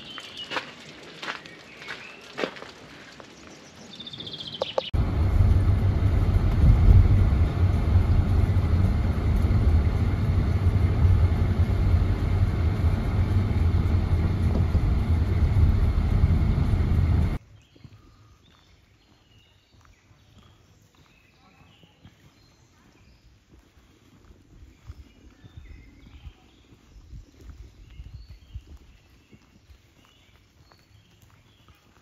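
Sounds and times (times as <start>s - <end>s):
car engine and tyres rumbling: 4.6s - 17.4s.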